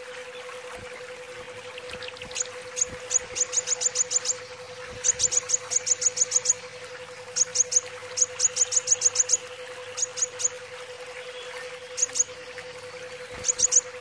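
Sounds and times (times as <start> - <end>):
bird singing high chirps: 13.4 - 13.9.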